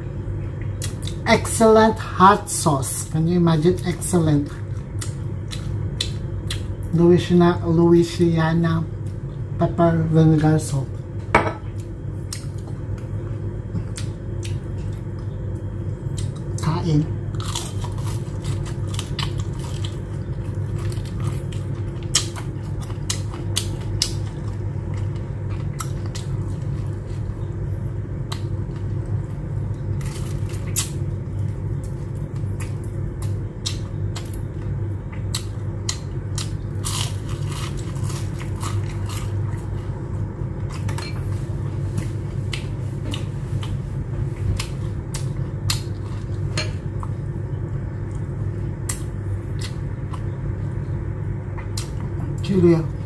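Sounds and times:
steady low hum: 0.0 - 53.0
chewing crispy shrimp: 17.2 - 50.7.

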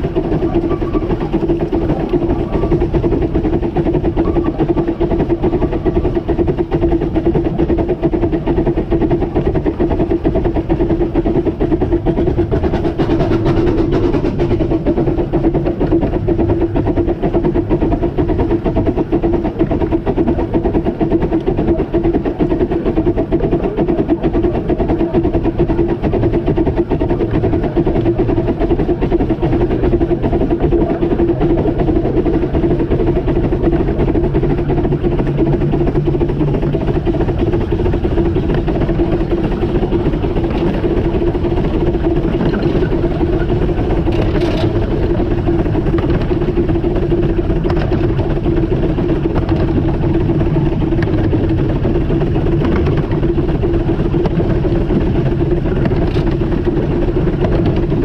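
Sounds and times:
even hum: 0.0 - 58.0
train running on track: 0.0 - 58.0.

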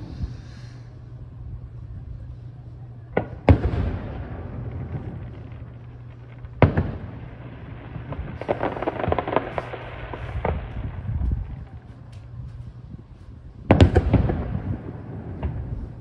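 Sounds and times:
firework shells booming: 3.2 - 11.8, 13.7 - 16.0
firework crackling: 3.2 - 16.0.

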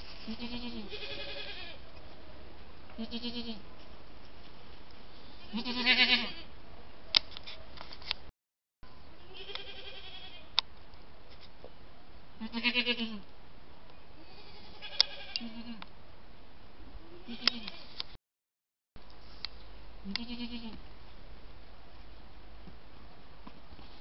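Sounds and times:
goats bleating: 0.3 - 1.8, 5.4 - 6.5, 9.2 - 10.4, 14.4 - 15.8.

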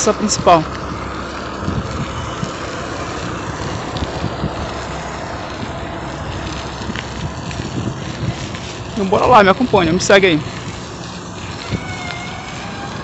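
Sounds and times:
bicycle road noise: 0.0 - 13.0
wind rushing: 1.1 - 9.0.

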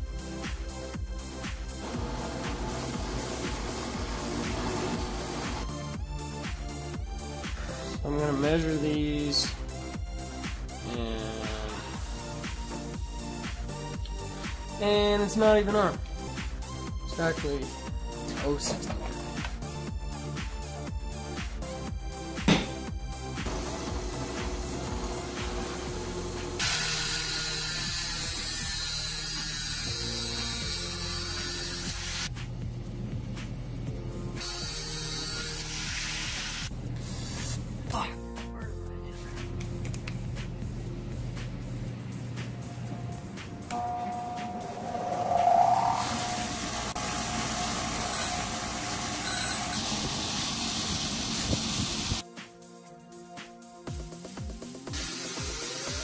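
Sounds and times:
angle grinder cutting metal rod: 24.1 - 32.3, 34.4 - 36.5, 45.4 - 50.8.

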